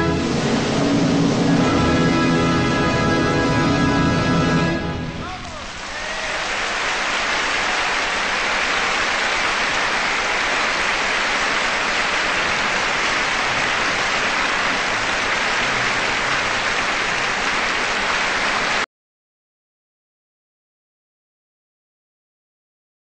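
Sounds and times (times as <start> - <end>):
steady hiss: 5.2 - 18.8.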